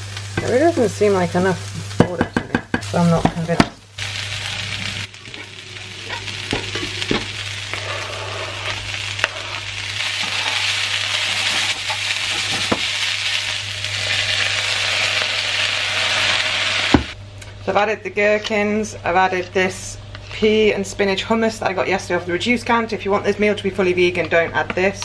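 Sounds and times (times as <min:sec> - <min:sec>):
vegetables sizzling in a frying pan: 0:00.0 - 0:17.2
low hum: 0:03.9 - 0:21.1.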